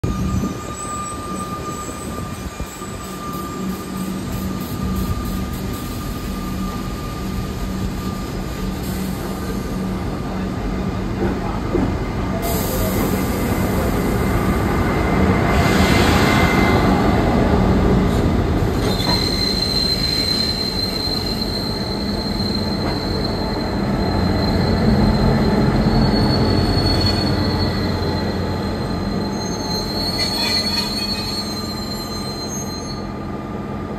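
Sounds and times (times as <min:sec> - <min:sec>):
diesel locomotive engines droning: 0:00.0 - 0:33.9
high-pitched wheel squeal: 0:00.1 - 0:08.2, 0:18.8 - 0:33.1
hiss: 0:12.4 - 0:14.4.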